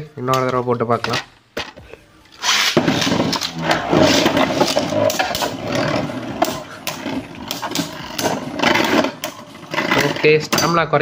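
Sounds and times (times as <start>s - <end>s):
spinning tops whirring on plastic: 2.4s - 10.3s.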